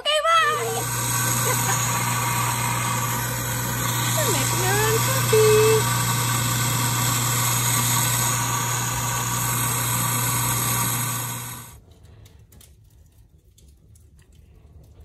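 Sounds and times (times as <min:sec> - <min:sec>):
coffee grinder motor hum: 0:00.3 - 0:11.8
beans being ground: 0:00.4 - 0:11.8
wood fire crackling: 0:00.4 - 0:15.0.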